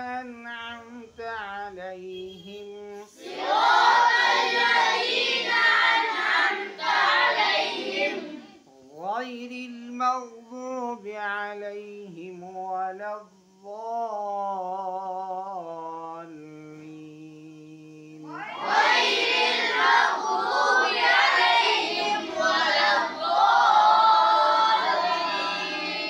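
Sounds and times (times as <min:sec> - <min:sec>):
boys reciting in unison: 0:00.0 - 0:26.0
voice holding a long recited note: 0:00.0 - 0:26.0.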